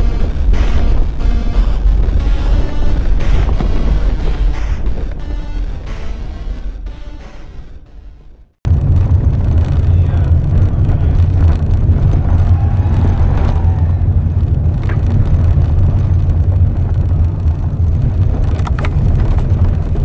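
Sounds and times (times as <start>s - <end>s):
car engine and road rumble: 8.6s - 20.0s.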